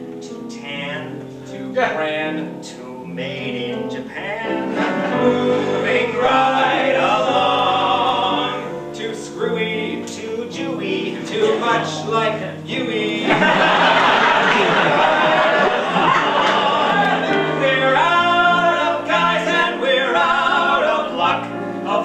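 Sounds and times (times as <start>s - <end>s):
piano accompaniment: 0.0s - 22.0s
two men singing a duet: 0.2s - 22.0s.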